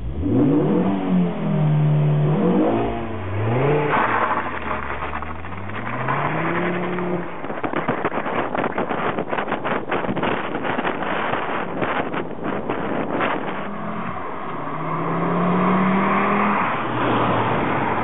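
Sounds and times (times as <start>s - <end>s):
car engine revving: 0.0s - 8.6s, 10.2s - 18.0s
road noise: 0.0s - 18.0s
wind noise: 2.5s - 18.0s.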